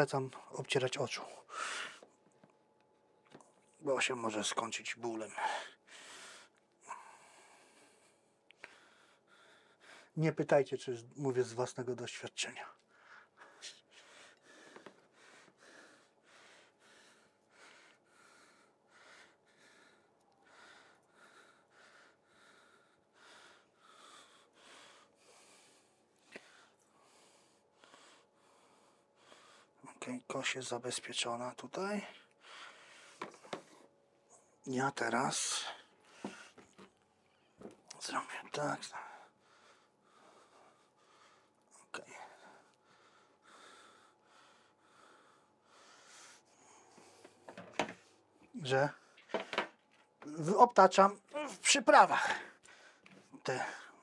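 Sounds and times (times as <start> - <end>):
faint breathing: 0.3 - 2.4, 5.2 - 10.2, 12.6 - 29.8, 32.0 - 34.6, 35.2 - 49.9, 52.1 - 54.0
man breathing through nose: 12.9 - 29.8, 39.0 - 41.6.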